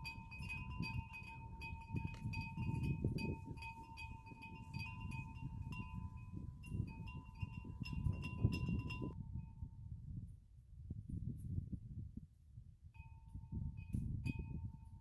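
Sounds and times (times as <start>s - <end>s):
wind chimes ringing: 0.0s - 9.2s
wind rumble on microphone: 0.0s - 15.0s.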